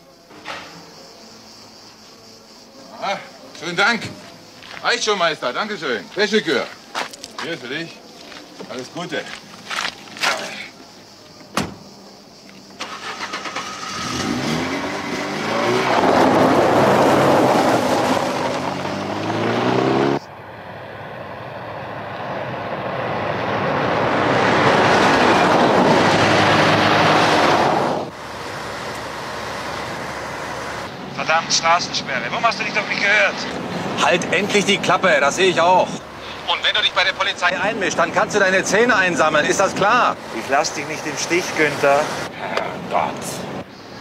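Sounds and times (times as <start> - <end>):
truck engine accelerating: 12.8 - 43.7.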